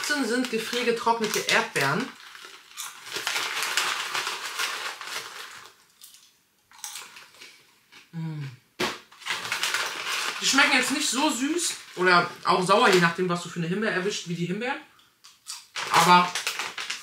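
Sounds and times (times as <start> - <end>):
crunchy food being chewed: 2.2 - 8.1.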